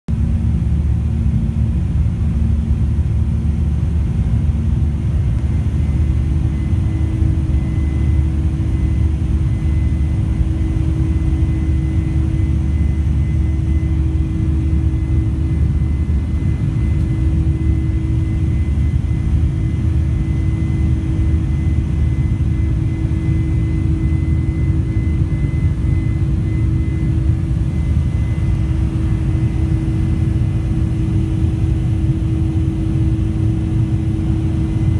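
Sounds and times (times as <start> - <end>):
deep jet engine rumble: 0.1 - 34.9
humming tone: 0.1 - 34.9
thin high whine: 0.1 - 34.9.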